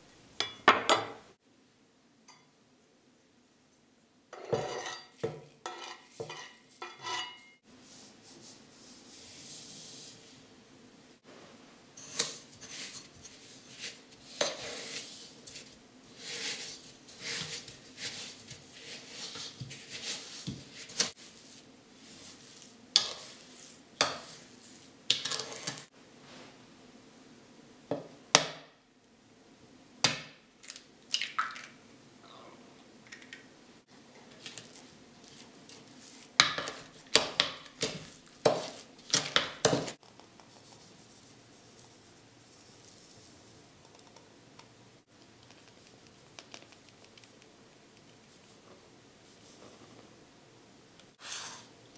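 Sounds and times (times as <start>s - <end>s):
spatula scraping in plastic bowl: 12.0s - 21.5s
sugar sliding into bowl: 12.0s - 26.6s, 51.2s - 51.8s.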